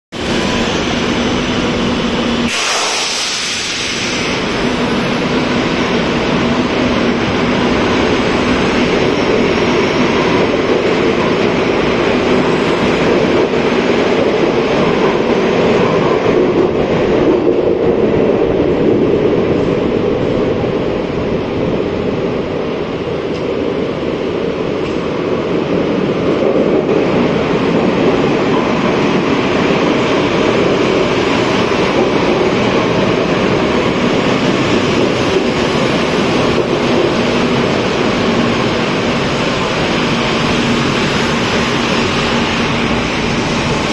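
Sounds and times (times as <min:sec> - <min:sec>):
electric train passing: 0:00.2 - 0:43.9
air hiss: 0:02.4 - 0:05.3.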